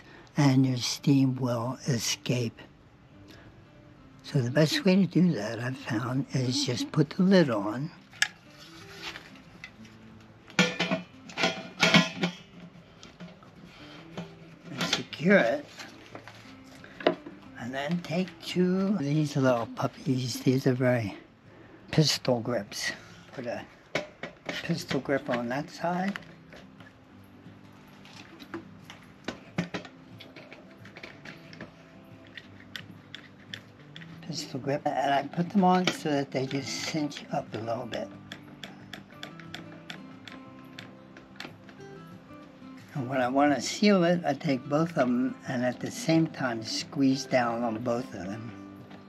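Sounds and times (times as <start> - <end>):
metal lid clanking on pot: 10.5 - 12.6.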